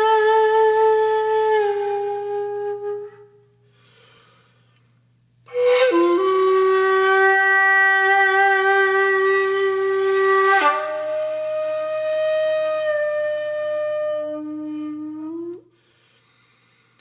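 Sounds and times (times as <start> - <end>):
solo flute: 0.0 - 3.8, 5.4 - 15.7.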